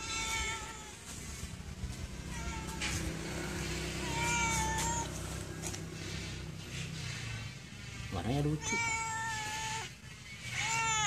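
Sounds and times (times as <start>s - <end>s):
cat meowing: 0.0s - 1.1s, 2.2s - 3.1s, 4.0s - 5.2s, 8.5s - 11.0s.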